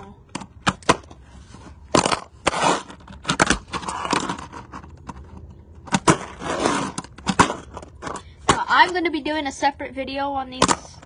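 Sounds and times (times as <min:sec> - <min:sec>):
small wheels rolling: 0:01.2 - 0:09.1.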